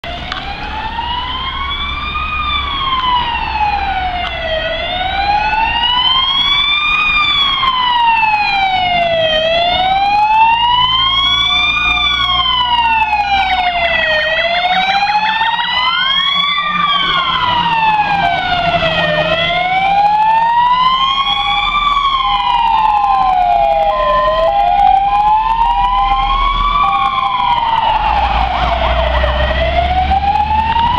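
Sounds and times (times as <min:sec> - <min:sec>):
fire engine sirens wailing: 0:00.0 - 0:30.9
short steady siren tones: 0:00.0 - 0:30.9
truck rumble: 0:00.0 - 0:30.9.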